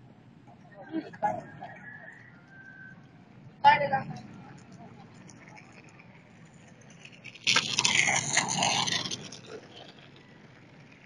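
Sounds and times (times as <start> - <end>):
outdoor ambience: 0.0 - 11.0
loud rushing scraping noise: 6.9 - 10.0.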